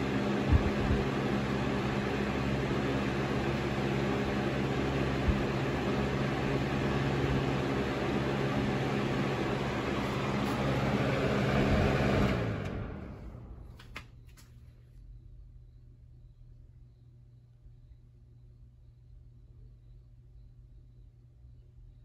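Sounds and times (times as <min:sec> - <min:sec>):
box fan air rushing: 0:00.0 - 0:14.2
fan motor hum: 0:00.0 - 0:22.0.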